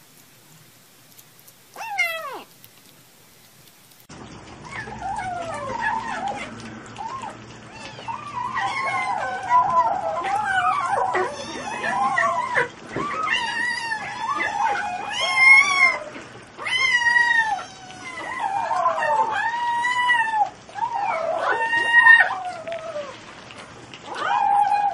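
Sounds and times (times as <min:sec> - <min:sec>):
kittens mewing: 0:01.7 - 0:02.7.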